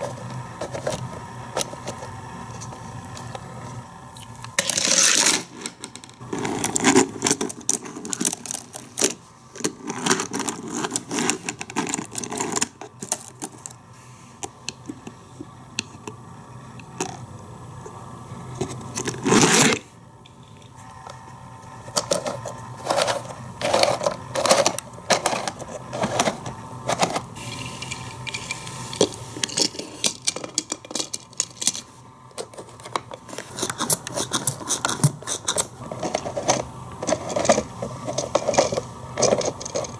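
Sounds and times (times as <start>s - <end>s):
toy cars rattling on plastic track: 4.6s - 9.2s, 33.4s - 39.9s
plastic parts clicking: 28.2s - 31.8s.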